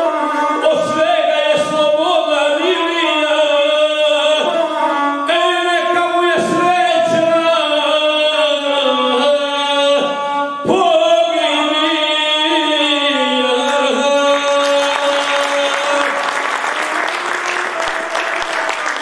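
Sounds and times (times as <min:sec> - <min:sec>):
person singing: 0:00.0 - 0:19.0
audience applause: 0:14.5 - 0:19.0.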